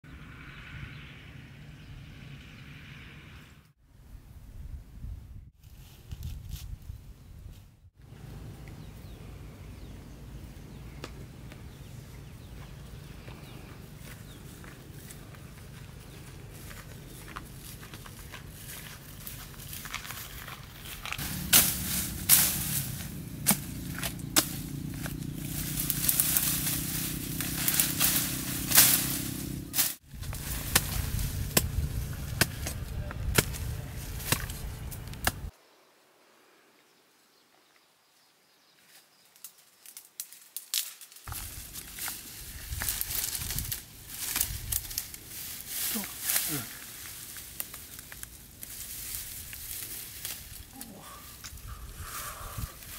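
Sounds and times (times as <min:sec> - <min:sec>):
small birds chirping: 0:08.1 - 0:18.3, 0:21.9 - 0:36.0
steady low rumble: 0:08.1 - 0:35.5
hand scraping dry soil: 0:12.7 - 0:35.5, 0:41.3 - 0:52.9.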